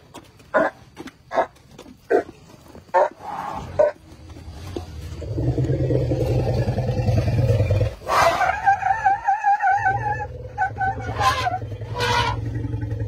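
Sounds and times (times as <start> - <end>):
elephant rumbling: 3.2 - 13.0
elephant squeaking: 7.4 - 12.6.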